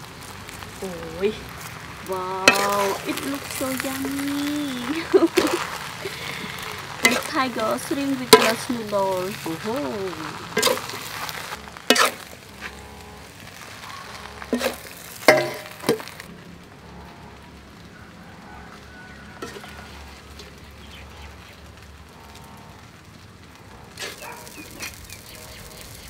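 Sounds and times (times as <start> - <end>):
faint sizzle: 0.0 - 26.0
metal ladle clanking on wok: 2.4 - 3.0, 14.5 - 16.1.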